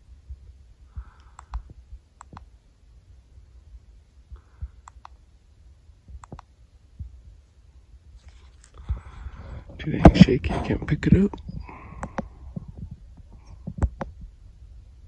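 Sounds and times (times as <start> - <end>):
handling bumps and rumble: 8.8 - 14.4.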